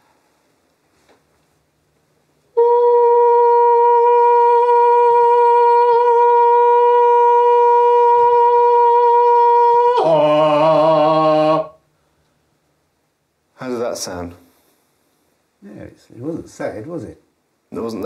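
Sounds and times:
man singing a long note: 2.5 - 11.8.

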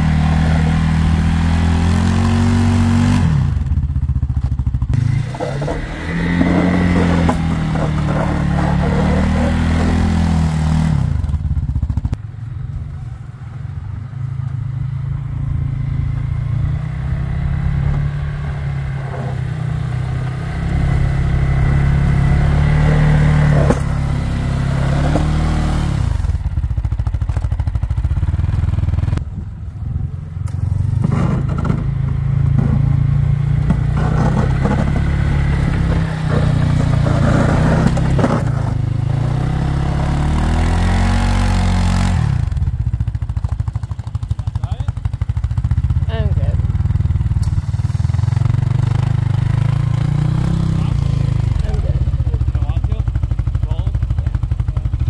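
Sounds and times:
plow blade scraping snow: 0.0 - 3.6, 4.9 - 11.3, 15.0 - 26.5, 30.5 - 42.6, 47.2 - 52.8
atv engine revving: 0.0 - 12.2, 13.2 - 55.0.

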